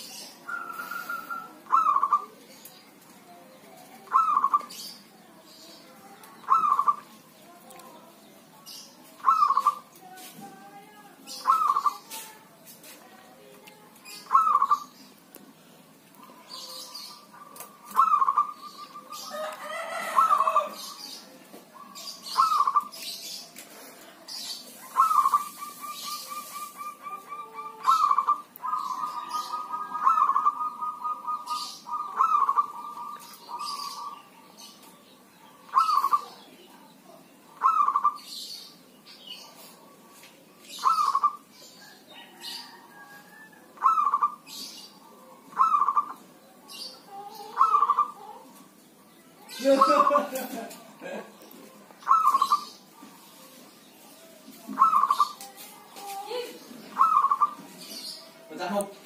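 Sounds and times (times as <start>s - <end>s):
dove cooing with rolling trills: 0.4s - 2.4s, 4.0s - 4.9s, 6.4s - 7.1s, 9.2s - 9.8s, 11.4s - 12.1s, 14.1s - 14.9s, 16.2s - 21.2s, 21.8s - 23.0s, 24.7s - 34.5s, 35.6s - 36.4s, 37.5s - 38.3s, 40.7s - 48.6s, 49.5s - 50.7s, 52.0s - 53.5s, 54.5s - 55.4s, 56.2s - 58.4s.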